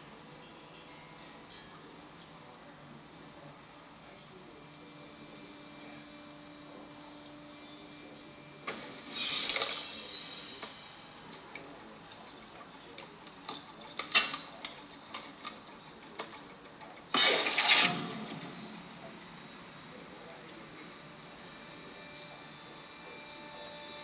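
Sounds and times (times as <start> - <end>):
sharp clicks and clinks: 8.7 - 18.2.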